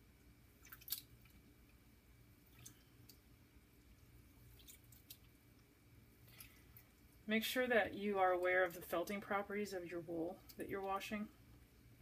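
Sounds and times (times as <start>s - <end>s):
soft splashes: 0.6s - 1.4s, 2.4s - 5.4s.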